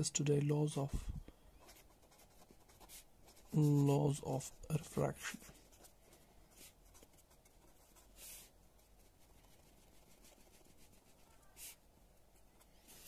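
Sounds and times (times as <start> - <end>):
pen scratching on paper: 1.6 - 3.8, 5.4 - 11.8.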